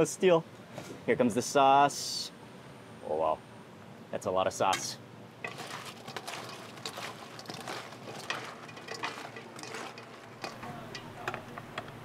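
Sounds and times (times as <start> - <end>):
plastic scoops scraping metal bowl: 5.4 - 12.0.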